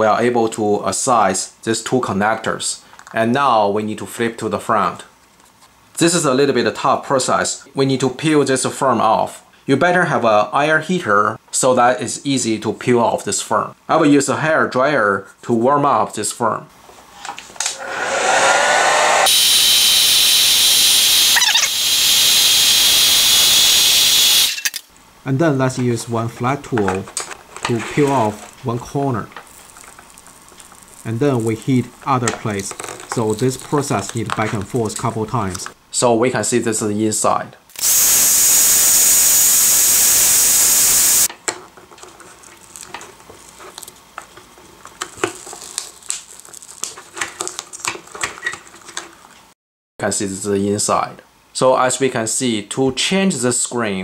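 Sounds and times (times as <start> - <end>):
hair dryer blowing: 17.7 - 24.5, 37.8 - 41.3
film peeling crackles: 29.3 - 34.6, 42.0 - 48.8.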